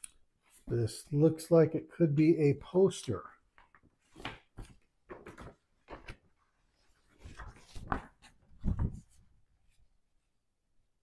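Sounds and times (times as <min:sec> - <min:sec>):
paper poster rustling: 0:03.6 - 0:09.8.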